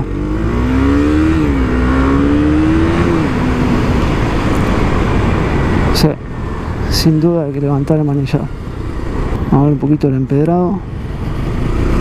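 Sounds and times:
motorcycle engine accelerating: 0.0 - 6.5, 11.0 - 12.0
wind rush: 1.1 - 7.2.

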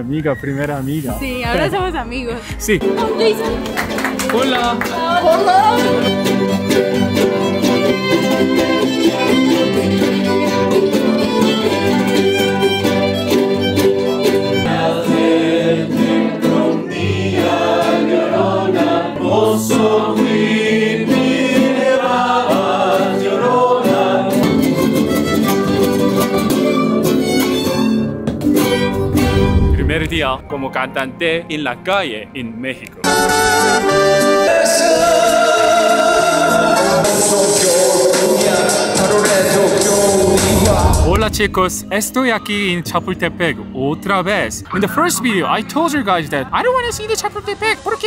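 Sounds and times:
song with instruments and singing: 2.4 - 30.5, 33.1 - 42.0.

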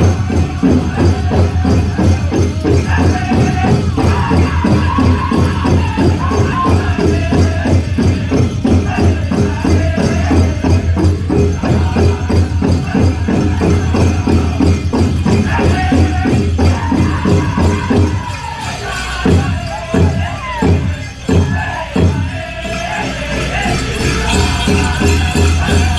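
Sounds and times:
big drum fast beat: 0.0 - 25.9
group singing: 0.0 - 25.9.

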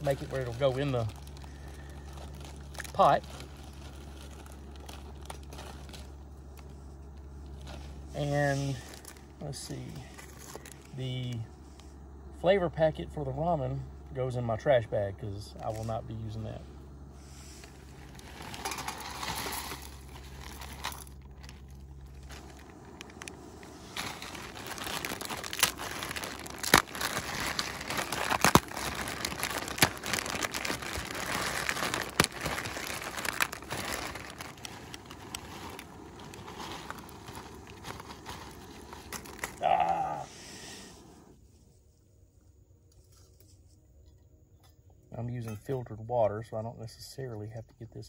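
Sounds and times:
dry noodles cracking: 0.0 - 7.8, 17.9 - 40.2
plastic bag crinkling: 0.0 - 11.0, 17.6 - 40.2.

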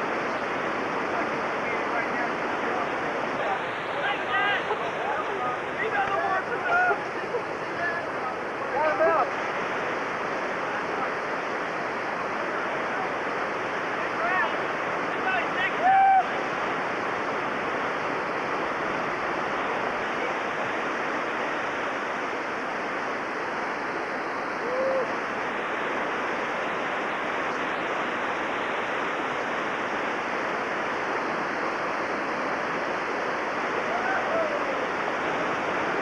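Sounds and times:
whitewater rapids rushing: 0.0 - 36.0.

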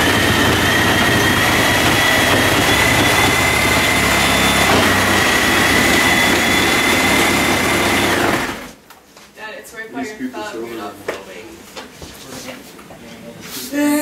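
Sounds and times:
reciprocating saw cutting: 0.0 - 8.8.

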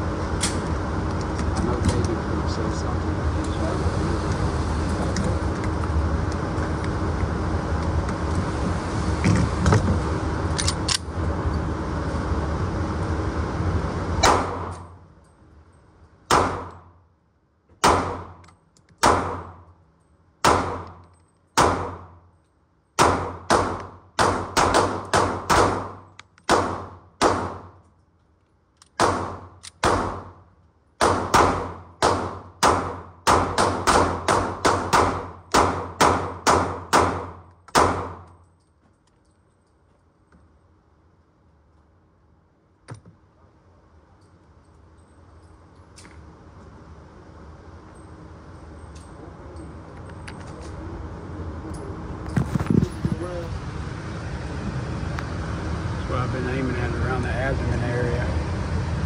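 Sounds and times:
handgun shots echoing: 14.2 - 14.8, 16.3 - 16.8, 17.8 - 19.5, 20.4 - 21.0, 21.6 - 22.1, 23.0 - 27.7, 29.0 - 30.3, 31.0 - 38.3.

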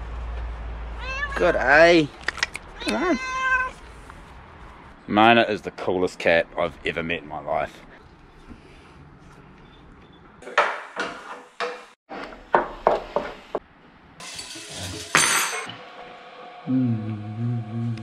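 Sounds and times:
cutlery and dishes clattering: 14.2 - 15.7.

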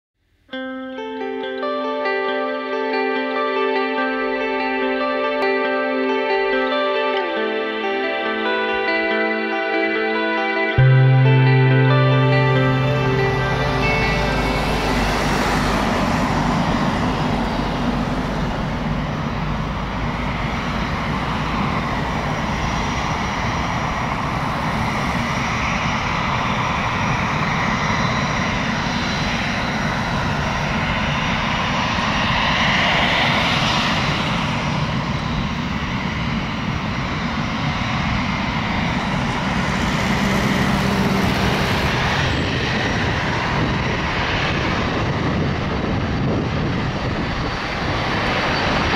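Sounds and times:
faint jet whine: 1.1 - 48.9
jet engine rumble: 10.8 - 48.9.

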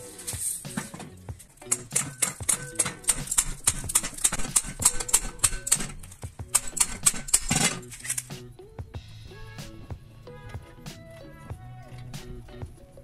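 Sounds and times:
wrench rasp: 0.1 - 8.4
ratcheting wrench clicking: 1.5 - 8.4.

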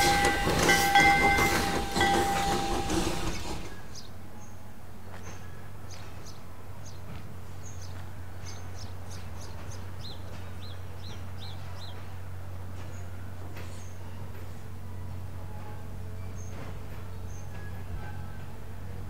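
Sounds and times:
small birds chirping: 5.2 - 12.2.

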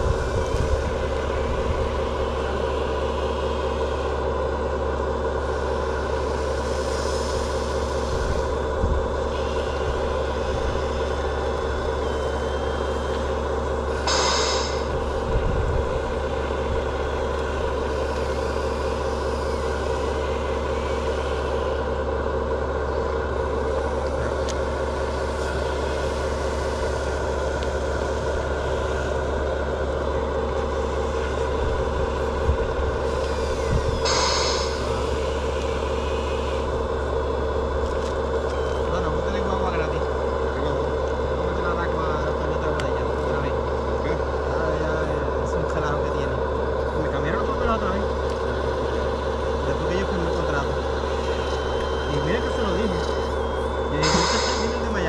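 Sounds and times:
model machine engine drone: 0.0 - 55.0
short hiss: 14.1 - 14.9, 34.1 - 34.8.

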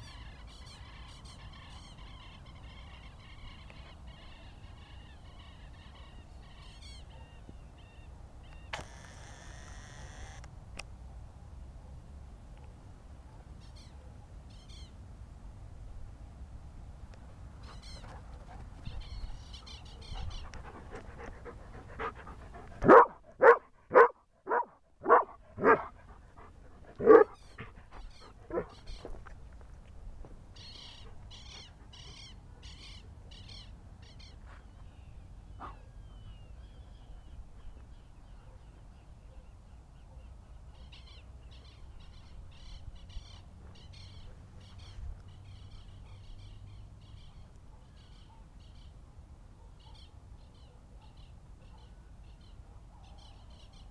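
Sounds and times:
dog barking: 22.8 - 25.9, 27.0 - 27.4, 28.5 - 28.8, 35.6 - 35.9, 47.7 - 48.6, 49.6 - 52.0, 52.7 - 53.4.

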